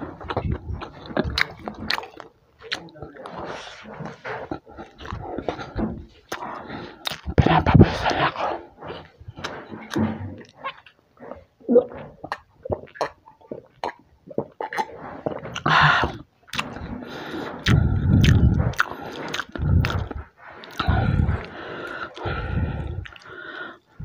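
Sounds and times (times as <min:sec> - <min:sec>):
swallowing clicks: 0:00.1 - 0:03.4, 0:04.5 - 0:08.3, 0:09.3 - 0:23.6
breathy burst: 0:16.8 - 0:24.0.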